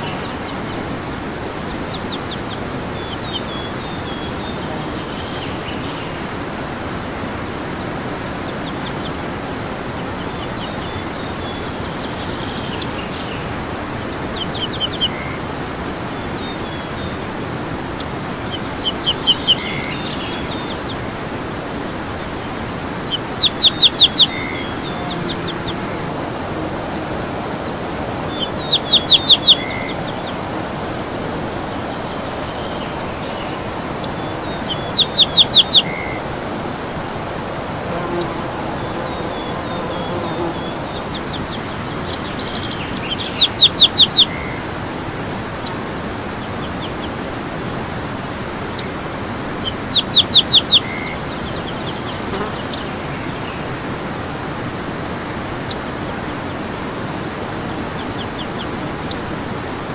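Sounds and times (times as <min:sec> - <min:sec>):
river rushing: 0:00.0 - 0:59.9
songbird trilling: 0:18.0 - 0:21.0, 0:23.0 - 0:26.1, 0:28.3 - 0:30.3, 0:34.1 - 0:36.2, 0:40.6 - 0:44.7, 0:49.6 - 0:52.9.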